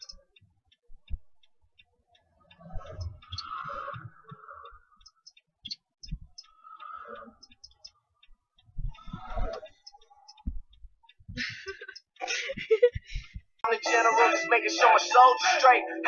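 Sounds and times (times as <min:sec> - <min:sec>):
faint irregular clicking: 0:00.0 - 0:13.7
soft low thumps: 0:06.0 - 0:06.4, 0:08.6 - 0:09.3, 0:10.4 - 0:11.6, 0:12.5 - 0:13.6.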